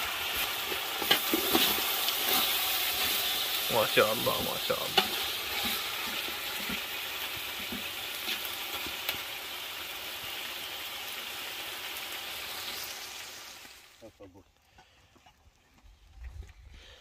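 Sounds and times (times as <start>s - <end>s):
meat sizzling in a pot: 0.0s - 14.0s.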